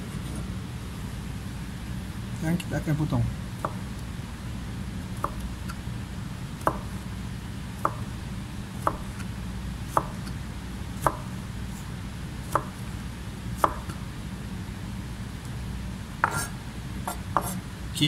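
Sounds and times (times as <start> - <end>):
knife chopping on cutting board: 5.2 - 5.5, 6.6 - 7.0, 8.8 - 9.3, 9.9 - 10.3, 11.0 - 11.3, 12.5 - 12.8, 13.6 - 14.0, 16.2 - 16.5, 17.1 - 17.6.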